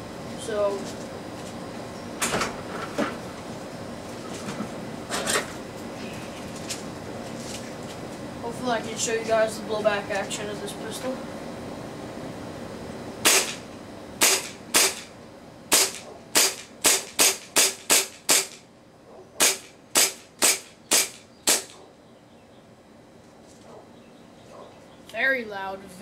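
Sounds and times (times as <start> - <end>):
airsoft pistol shots: 13.2 - 15.1, 15.7 - 18.6, 19.4 - 21.8.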